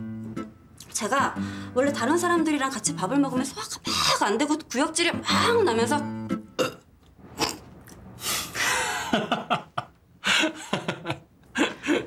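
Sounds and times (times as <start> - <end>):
man laughing: 8.6 - 12.0.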